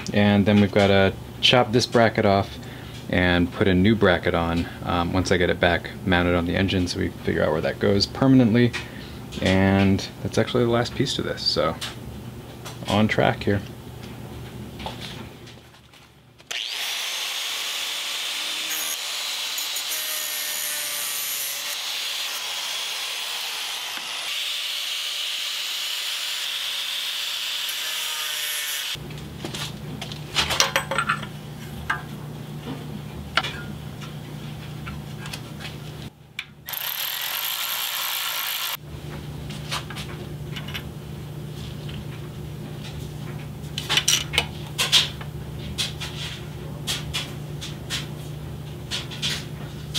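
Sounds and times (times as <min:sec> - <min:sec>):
angle grinder cutting metal: 0:16.5 - 0:29.0, 0:36.7 - 0:38.8
metal parts clanking: 0:30.5 - 0:31.4.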